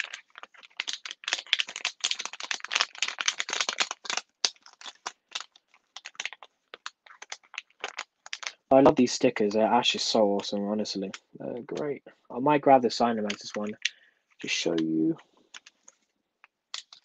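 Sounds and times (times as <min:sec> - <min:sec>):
plastic packaging crinkling: 0:00.0 - 0:08.7, 0:13.0 - 0:17.0.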